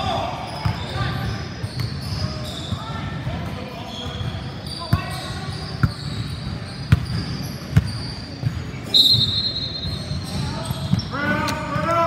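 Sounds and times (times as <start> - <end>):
referee's whistle blast: 8.9 - 10.2.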